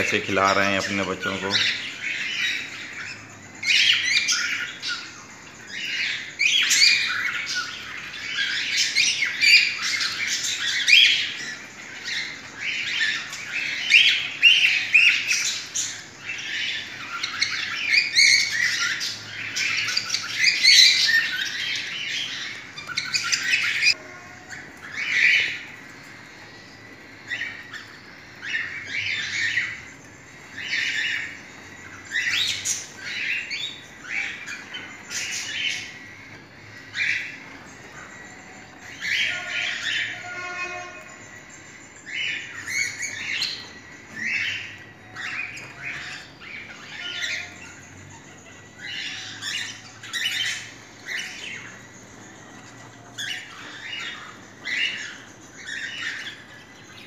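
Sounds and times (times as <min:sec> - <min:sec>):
cockatiels squawking and chirping: 0:00.0 - 0:57.0.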